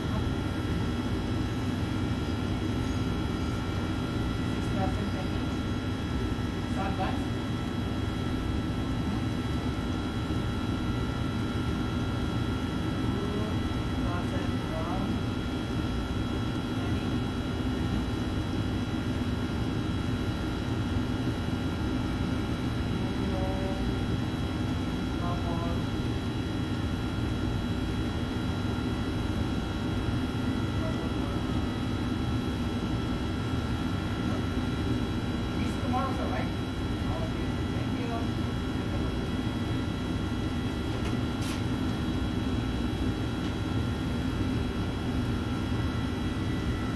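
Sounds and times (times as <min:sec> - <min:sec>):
fan noise: 0:00.0 - 0:46.9
machinery hum and whir: 0:00.0 - 0:46.9.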